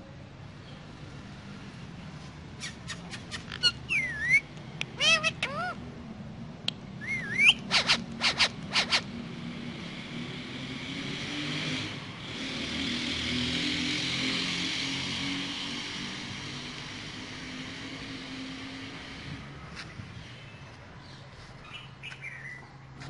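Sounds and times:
parakeet whistling and calling: 2.6s - 5.8s, 7.0s - 9.0s.

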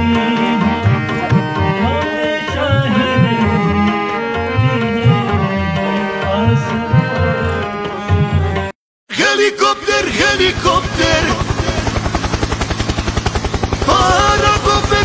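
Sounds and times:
held instrumental notes: 0.0s - 8.8s
drum beat: 2.6s - 8.7s.

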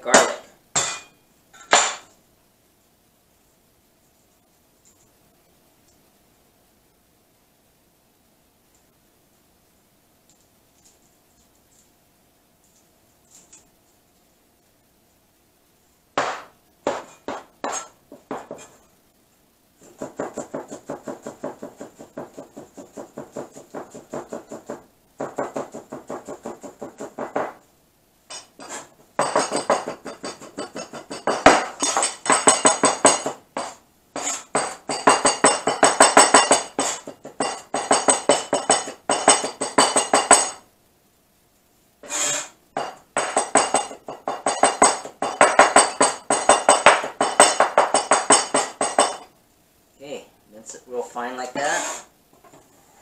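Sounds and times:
cleaver chopping on plastic board: 16.2s - 18.8s.

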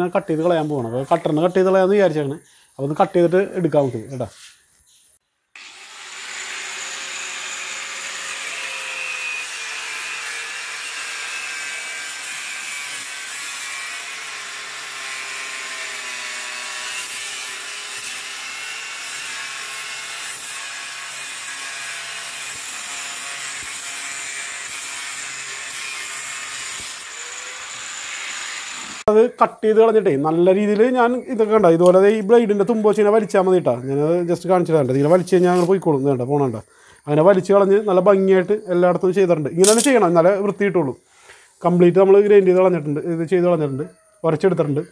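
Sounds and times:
angle grinder motor whine: 5.6s - 12.6s.

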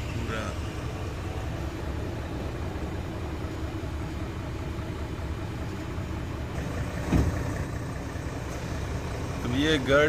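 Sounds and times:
truck diesel engine idling: 0.0s - 10.0s
brief thump: 7.0s - 7.4s.

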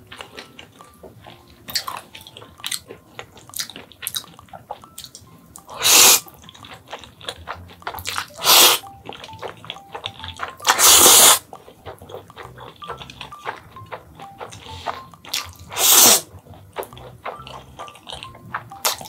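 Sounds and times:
wet chewing: 0.0s - 19.0s
mouth clicks: 1.7s - 19.0s
noodle slurps: 5.7s - 9.4s, 10.0s - 19.0s.

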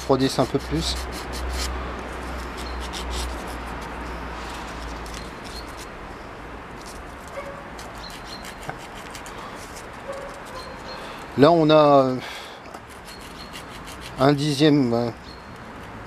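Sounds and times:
abrasive paper scraping on steel: 0.2s - 5.9s.

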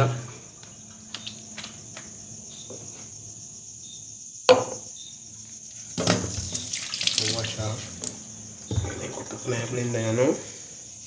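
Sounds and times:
crickets chirring: 0.0s - 11.0s
plastic cup knocking on counter: 4.5s - 4.8s.

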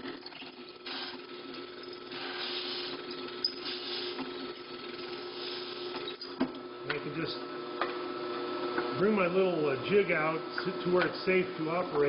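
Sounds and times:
drill press humming: 0.8s - 9.0s.

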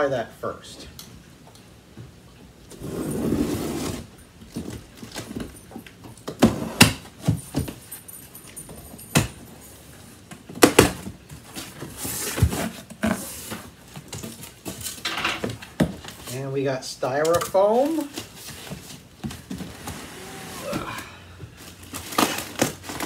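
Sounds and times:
cardboard rustling scrape: 2.7s - 4.1s, 11.5s - 13.9s, 18.1s - 20.9s.

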